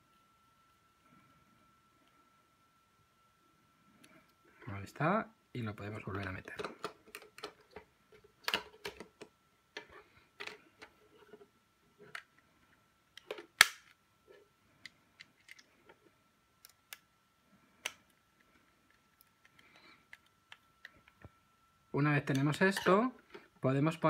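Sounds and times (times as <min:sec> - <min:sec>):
faint steady high tone: 0:00.0 - 0:06.5.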